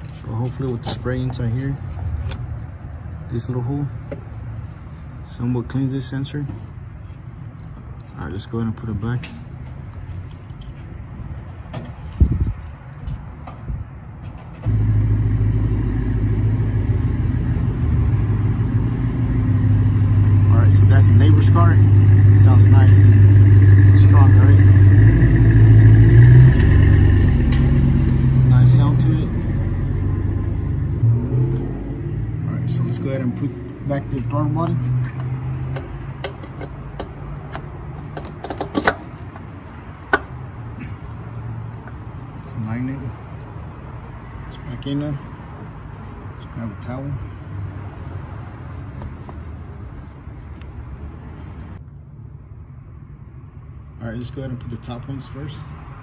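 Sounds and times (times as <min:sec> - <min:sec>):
car engine humming: 0:14.5 - 0:42.2
hands handling engine parts: 0:34.2 - 0:40.6, 0:47.7 - 0:50.9.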